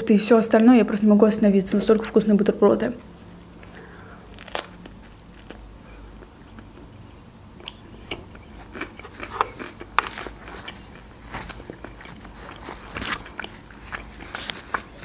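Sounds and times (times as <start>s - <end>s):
quiet chewing: 3.0s - 15.0s
crunching sandwich bites: 3.2s - 7.0s, 7.6s - 15.0s.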